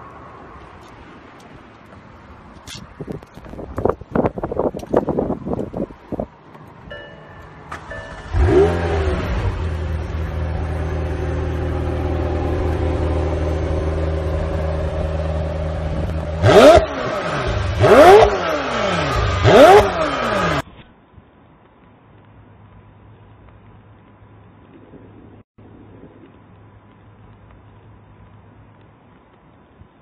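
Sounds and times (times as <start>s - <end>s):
car engine starting and idling: 7.4s - 20.6s
engine revs blipped: 7.7s - 20.6s.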